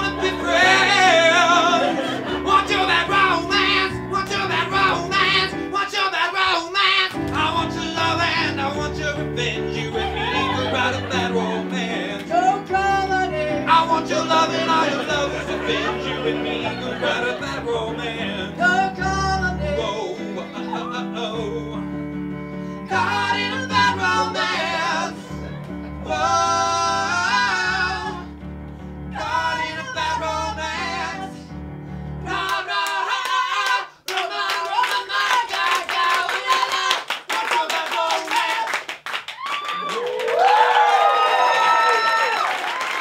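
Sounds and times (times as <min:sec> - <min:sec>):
rapid hand clapping: 0:07.1 - 0:07.5, 0:32.5 - 0:41.0, 0:41.8 - 0:43.0
electric keyboard chords and bass: 0:07.2 - 0:32.4.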